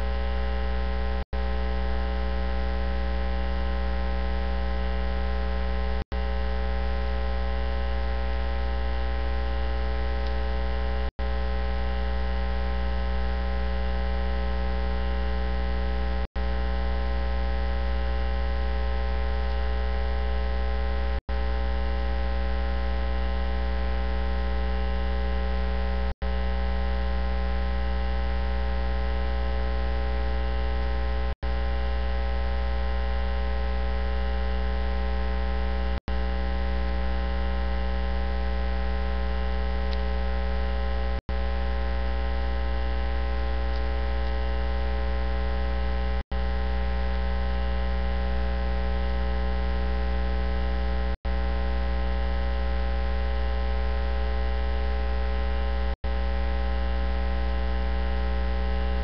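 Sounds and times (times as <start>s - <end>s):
electrical mains hum: 0.0s - 59.0s.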